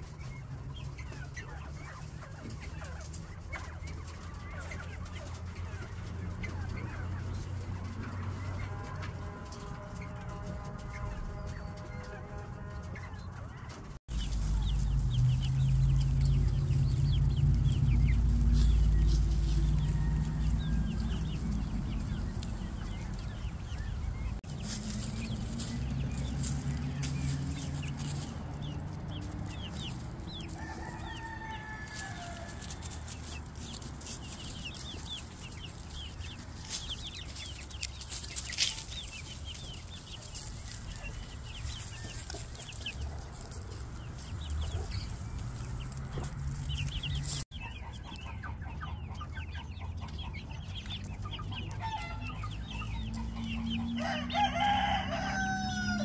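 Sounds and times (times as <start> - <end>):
hens clucking: 0.0 - 56.0
heavy low rumble: 14.1 - 30.8
dry leaves crackling: 14.1 - 47.7, 51.4 - 56.0.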